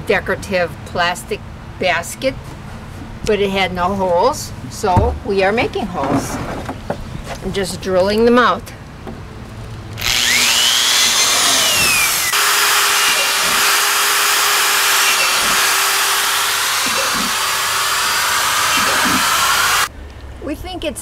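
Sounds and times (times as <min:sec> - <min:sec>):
electric drill boring plastic: 0:10.0 - 0:19.9.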